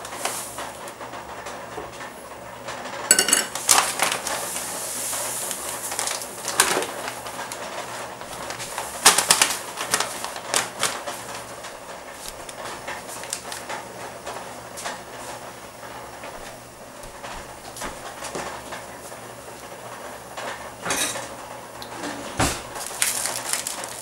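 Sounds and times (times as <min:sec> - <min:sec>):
metal cup clinking on steel pot: 0:03.1 - 0:03.6
plastic bag crinkling: 0:03.5 - 0:13.8, 0:22.7 - 0:24.0.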